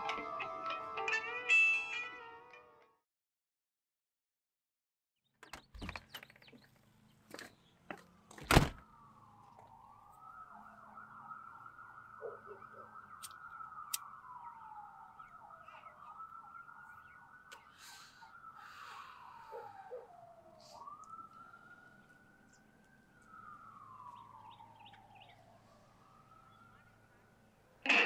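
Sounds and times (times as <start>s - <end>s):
emergency siren wailing: 0.0s - 2.7s, 7.9s - 28.0s.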